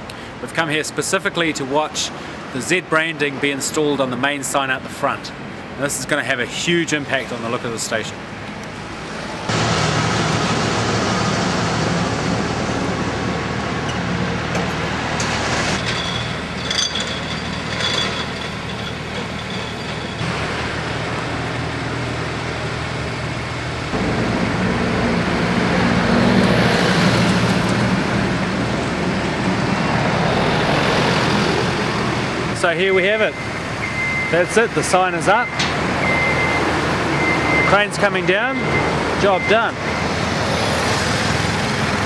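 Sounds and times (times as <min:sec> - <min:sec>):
road traffic: 0:00.0 - 0:42.0
diesel crane engine running: 0:08.6 - 0:32.5, 0:35.4 - 0:42.0.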